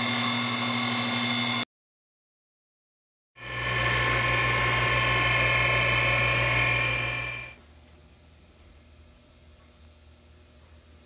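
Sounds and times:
grinder whining: 0.0 - 1.6, 3.4 - 7.6.

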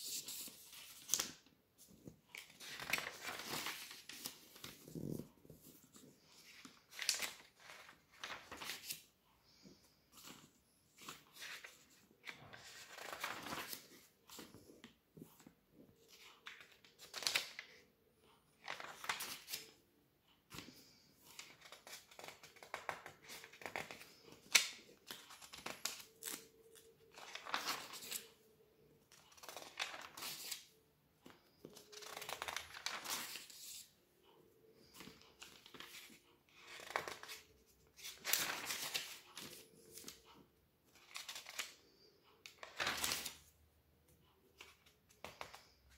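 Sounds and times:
magazine pages turning: 0.0 - 17.8, 18.5 - 19.8, 20.5 - 28.5, 29.1 - 33.9, 34.8 - 40.2, 40.9 - 43.5, 44.6 - 45.8.

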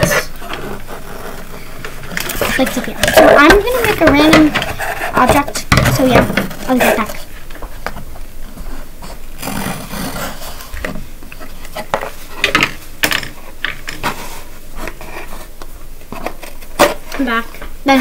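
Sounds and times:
knife scraping paper bowl: 0.0 - 5.6, 9.0 - 10.8.

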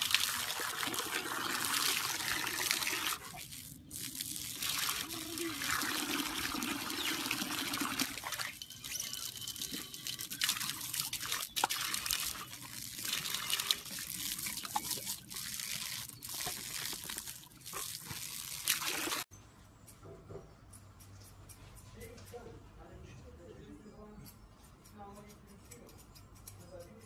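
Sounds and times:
water splashing and dribbling: 0.0 - 19.3.

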